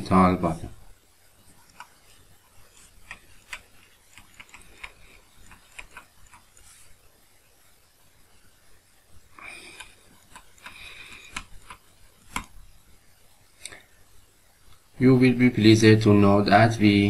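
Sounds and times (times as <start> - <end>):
pen tip scratching: 2.8 - 6.7.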